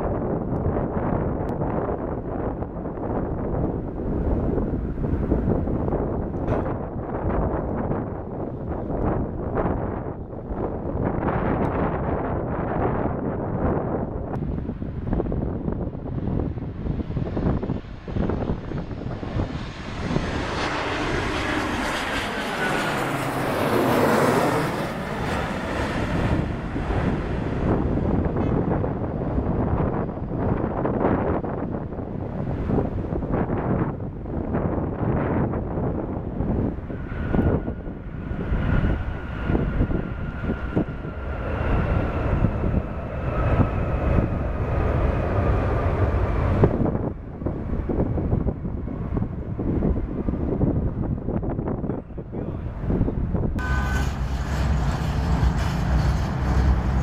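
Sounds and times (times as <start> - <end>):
jet engines roaring: 0.0 - 57.0
wind buffeting microphone: 0.0 - 57.0
faint high whine: 53.6 - 56.2.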